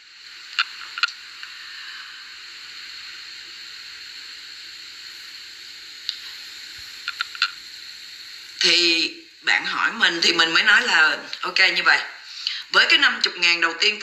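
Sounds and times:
background hiss: 0.0 - 14.0
sharp click: 7.1 - 7.5.

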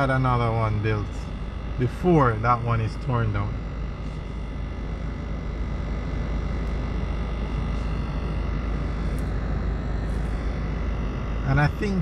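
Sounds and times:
car engine: 0.0 - 12.0.

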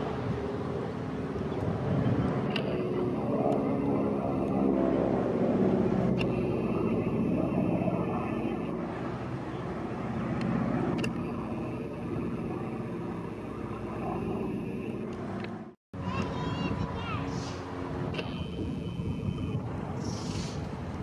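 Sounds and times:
biplane engines droning in flight: 0.0 - 21.0.

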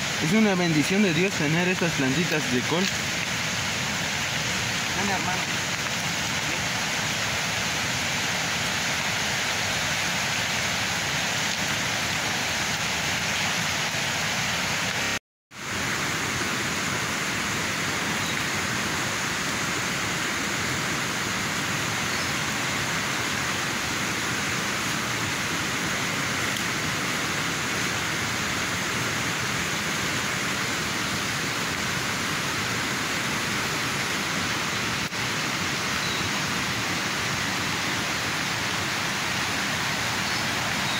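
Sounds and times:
steady rushing hiss: 0.0 - 40.9.

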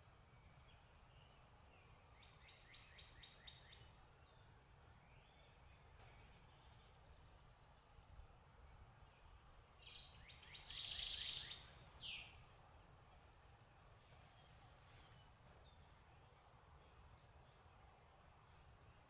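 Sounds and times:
songbird calling: 0.0 - 8.2, 9.0 - 12.5
faint outdoor background noise: 0.0 - 19.0.

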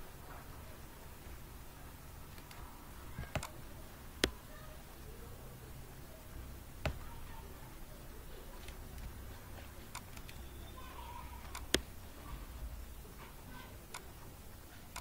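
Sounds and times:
low steady hum: 0.0 - 15.0
computer mouse clicks: 2.3 - 3.6, 4.2 - 4.4, 9.8 - 10.5, 11.4 - 12.0, 13.8 - 14.2, 14.8 - 15.0.

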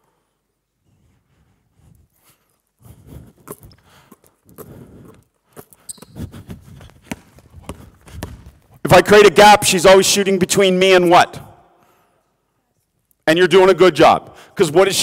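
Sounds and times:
shoe squeak: 5.6 - 8.6
basketball dribbling thuds: 5.9 - 8.8
sneaker footsteps on wooden floor: 6.4 - 8.8.

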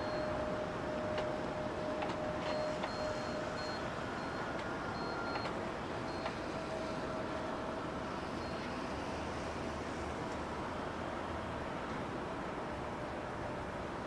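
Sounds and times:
faint high-pitched tones: 0.0 - 7.4.

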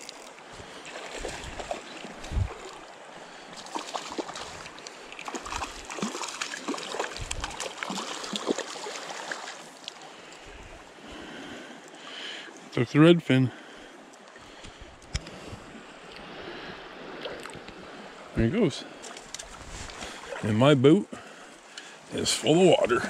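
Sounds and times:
water splashes: 0.0 - 12.7, 18.8 - 20.6
stream running: 0.0 - 23.0.

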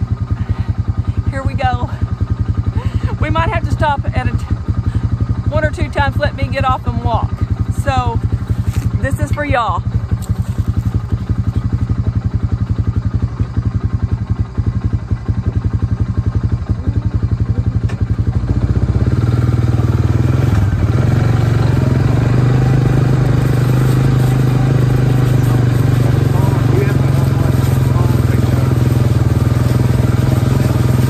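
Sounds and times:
atv engine running: 0.0 - 31.0.

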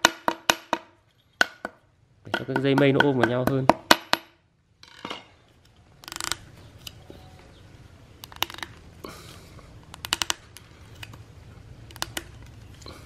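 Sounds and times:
rattan strip clicking on wood: 6.0 - 7.0, 8.2 - 8.8, 9.9 - 11.2, 11.8 - 12.8.

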